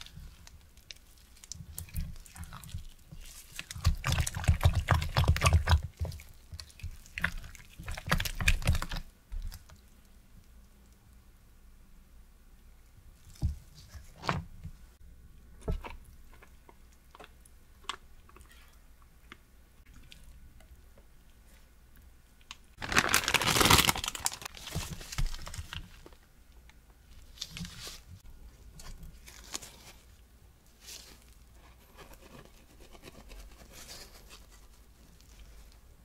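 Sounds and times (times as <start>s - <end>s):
plastic crinkling and rustling: 22.5s - 26.2s, 27.1s - 30.2s.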